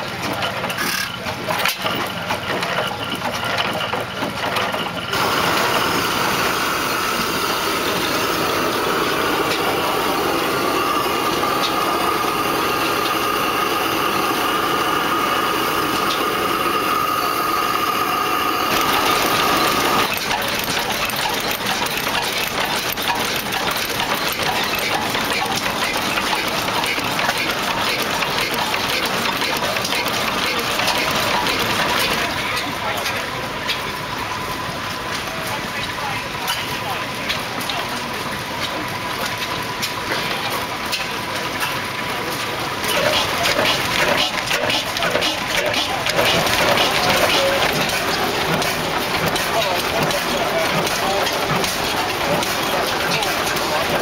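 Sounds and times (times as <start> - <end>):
oil engines running: 0.0 - 54.0
dense rapid ticking: 2.1 - 32.7, 42.4 - 54.0
steady high tone: 5.1 - 20.2.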